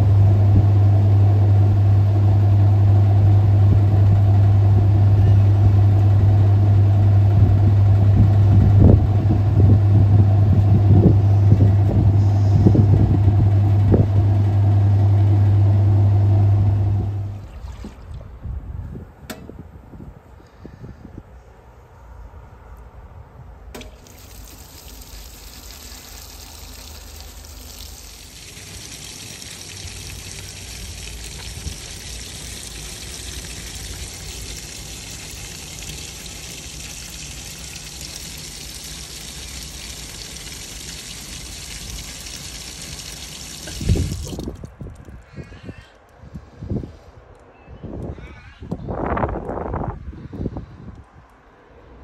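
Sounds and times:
water pouring into washer tub: 0:17.1 - 0:18.3, 0:23.8 - 0:44.7.

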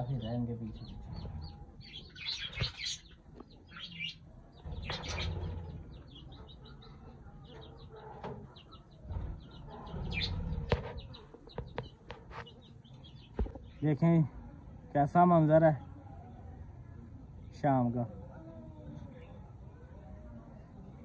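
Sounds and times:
budgerigars chirping: 0:00.7 - 0:06.7, 0:09.4 - 0:13.4.

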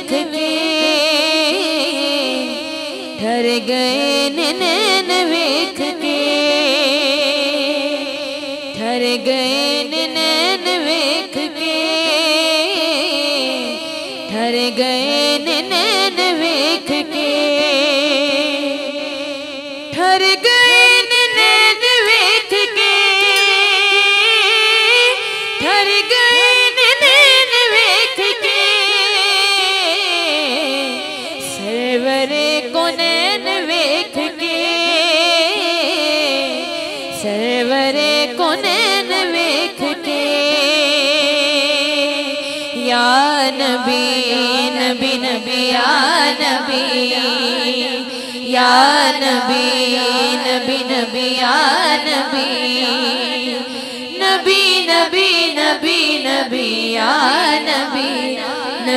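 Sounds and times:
ornamented melody: 0:23.3 - 0:25.3.

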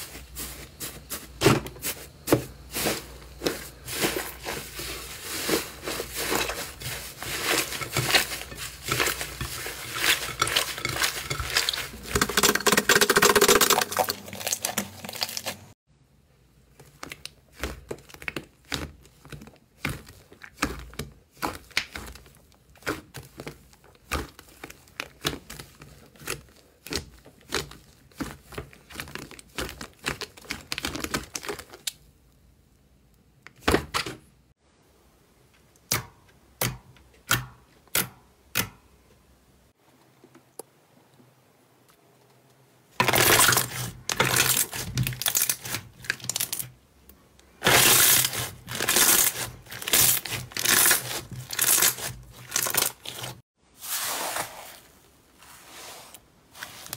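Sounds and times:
dense slime crackling: 0:02.6 - 0:15.8, 0:47.5 - 0:53.4.

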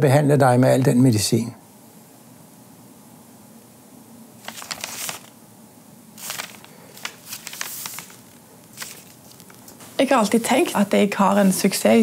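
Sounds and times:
paper rustling: 0:04.4 - 0:05.3, 0:06.2 - 0:12.0.

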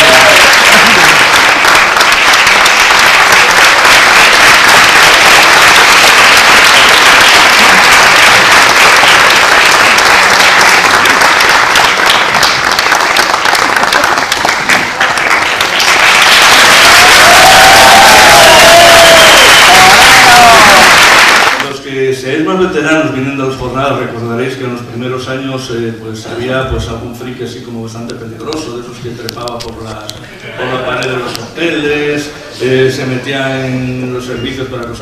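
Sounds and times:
audience applauding: 0:00.0 - 0:21.7.

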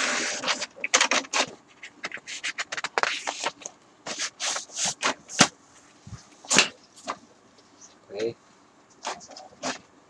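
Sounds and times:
printer carriage scraping and swishing: 0:00.0 - 0:05.5, 0:09.0 - 0:09.9.

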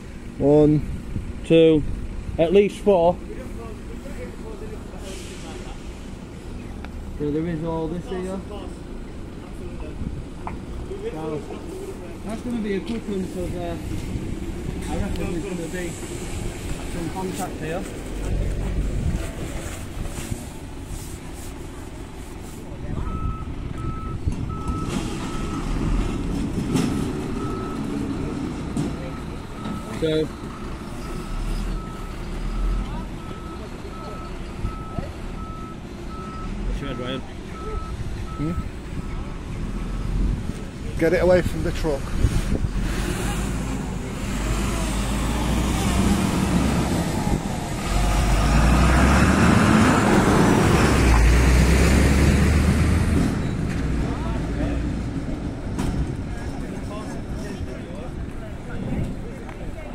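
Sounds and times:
low engine rumble: 0:00.0 - 0:59.9
reversing alarm beeping: 0:23.0 - 0:25.8, 0:29.0 - 0:39.4.

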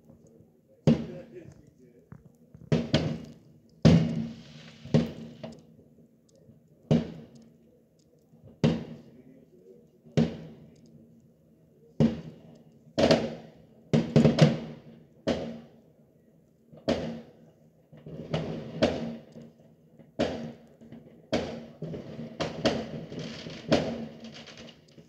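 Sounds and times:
fireworks bangs: 0:02.6 - 0:05.6, 0:13.0 - 0:15.7, 0:16.9 - 0:17.4, 0:18.0 - 0:19.4, 0:20.2 - 0:25.0.

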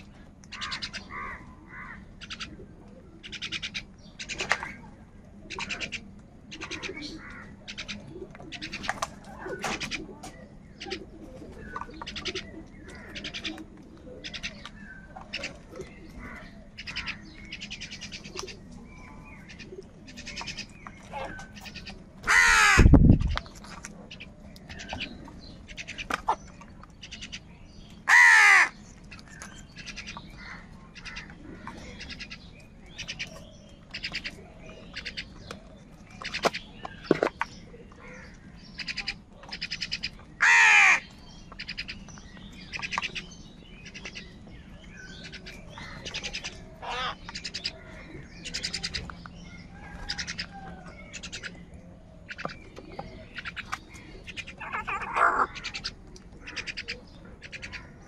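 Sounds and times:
loud harsh crow caws: 0:00.5 - 0:02.0, 0:22.3 - 0:22.9, 0:28.1 - 0:28.8, 0:40.4 - 0:41.1, 0:46.8 - 0:47.2
flock of crows cawing: 0:00.5 - 0:02.5, 0:05.6 - 0:08.0, 0:16.2 - 0:17.9, 0:21.7 - 0:22.9, 0:28.0 - 0:28.8, 0:29.4 - 0:32.4, 0:38.0 - 0:41.1, 0:45.2 - 0:48.8, 0:53.4 - 0:58.0.

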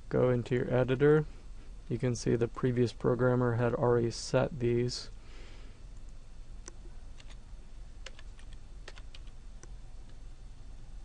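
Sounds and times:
low steady hum: 0:00.0 - 0:11.0
computer keyboard keys clicking: 0:07.2 - 0:07.4, 0:08.0 - 0:09.7.

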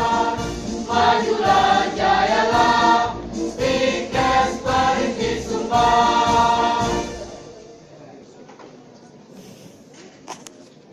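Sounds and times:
women's choir singing a march: 0:00.0 - 0:07.4.

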